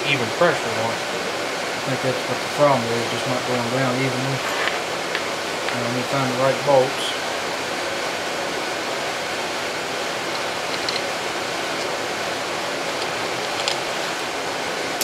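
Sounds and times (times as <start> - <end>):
background shop hiss: 0.0 - 15.0.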